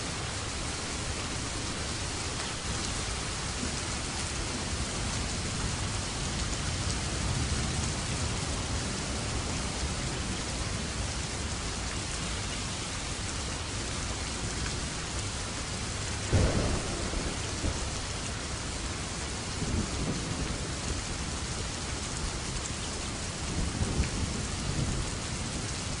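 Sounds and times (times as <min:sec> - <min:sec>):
heavy rain falling: 0:00.0 - 0:26.0
thunder clap and rumbles: 0:16.2 - 0:21.5, 0:23.5 - 0:26.0.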